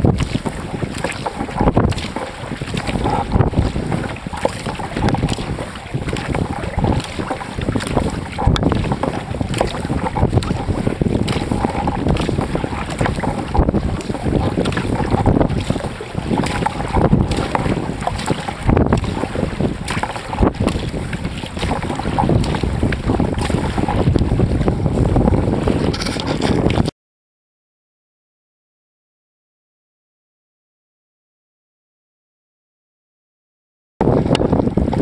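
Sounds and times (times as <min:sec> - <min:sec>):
paddle strokes splashing: 0:00.0 - 0:26.9, 0:34.0 - 0:35.0
wind buffeting microphone: 0:00.0 - 0:26.9, 0:34.0 - 0:35.0.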